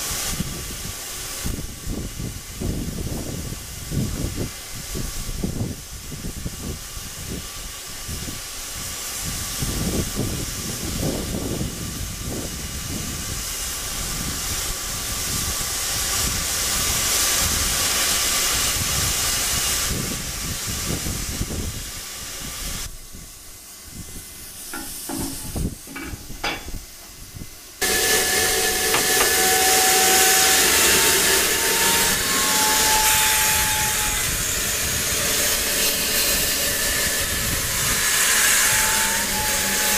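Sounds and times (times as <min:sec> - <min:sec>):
steam locomotive hissing: 0:00.0 - 0:39.9
knocks: 0:24.8 - 0:26.8, 0:28.9 - 0:29.4.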